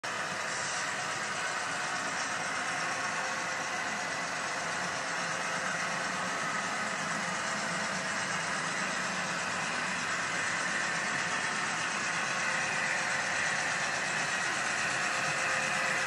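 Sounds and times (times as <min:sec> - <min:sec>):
model train running hum: 0:00.1 - 0:16.0.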